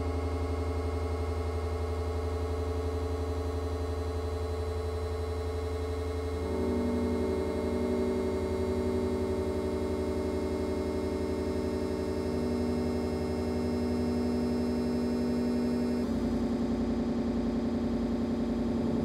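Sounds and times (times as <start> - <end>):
synthesizer drone chords: 6.4 - 19.0
pulsing bass: 14.4 - 19.0.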